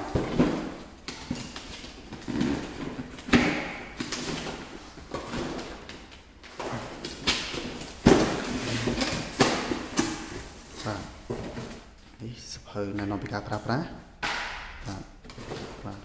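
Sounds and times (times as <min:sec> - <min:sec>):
cardboard scraping and sliding: 0:08.1 - 0:11.8.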